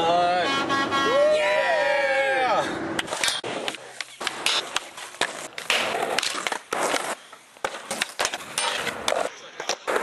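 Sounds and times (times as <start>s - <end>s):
skateboard clacking: 3.0s - 10.0s
skateboard wheels rolling: 3.0s - 10.0s.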